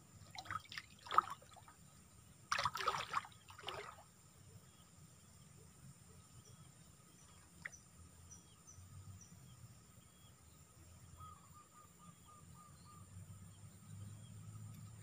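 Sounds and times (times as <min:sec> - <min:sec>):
insect drone: 0:00.0 - 0:15.0
small birds chirping: 0:03.4 - 0:15.0.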